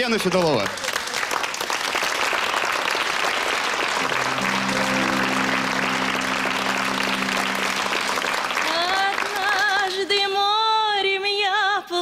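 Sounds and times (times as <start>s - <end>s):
audience applauding: 0.0s - 10.7s
band playing held chord: 4.0s - 9.9s.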